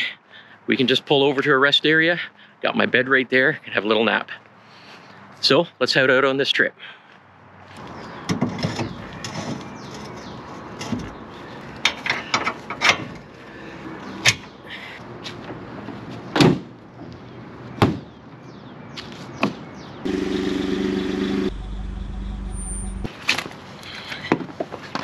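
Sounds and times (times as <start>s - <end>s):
metal clanks and knocks: 11.8s - 13.2s.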